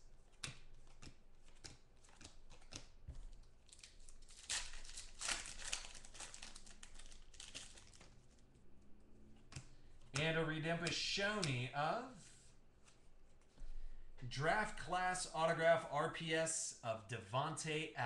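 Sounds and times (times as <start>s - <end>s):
cards rustling and clicking: 0.1s - 8.6s, 9.3s - 11.7s
foil wrapper crinkling and tearing: 0.8s - 8.5s.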